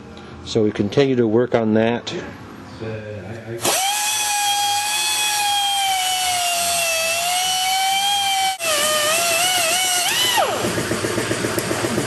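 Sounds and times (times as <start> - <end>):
power cutting tool whining: 3.6 - 11.6.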